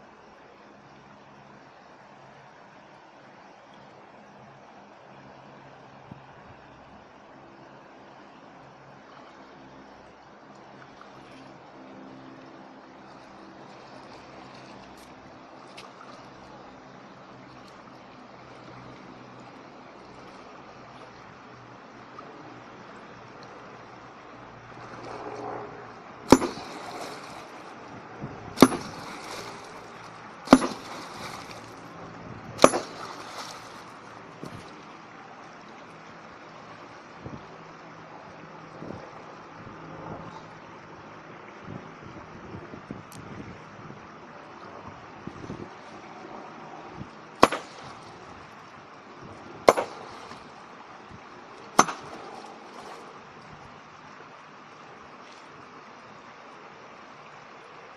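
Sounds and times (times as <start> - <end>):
stream rushing: 0.0 - 57.9
water splash: 13.0 - 16.5, 26.2 - 35.0, 47.4 - 48.6, 49.6 - 53.4
hammer cracking on rocks: 26.3 - 27.2, 28.6 - 29.4, 30.5 - 31.6, 32.6 - 33.5, 47.4 - 47.9, 49.7 - 50.0, 51.8 - 52.2.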